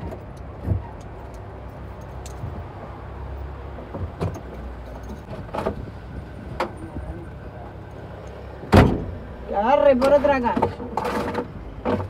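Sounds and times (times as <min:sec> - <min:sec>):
knocks and rattles in car cabin: 0:03.8 - 0:05.9, 0:08.7 - 0:09.2.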